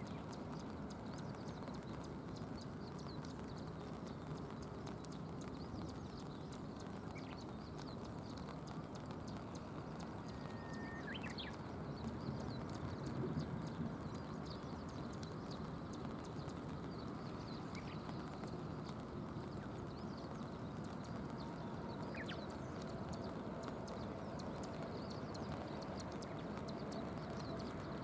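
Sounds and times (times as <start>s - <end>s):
faint high chirps: 0.0s - 28.0s
rain and river water rushing: 0.0s - 28.0s.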